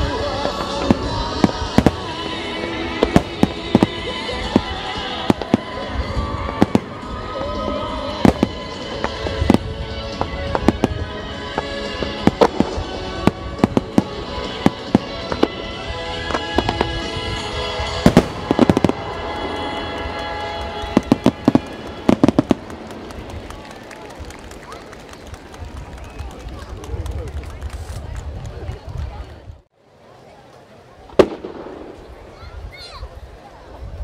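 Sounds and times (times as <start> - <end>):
music playing: 0.0 - 24.6
fireworks bursting: 0.0 - 26.4, 31.0 - 32.7.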